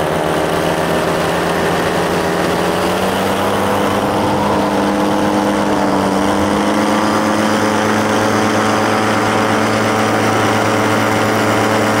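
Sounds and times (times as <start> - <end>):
paramotor engine and propeller: 0.0 - 12.0.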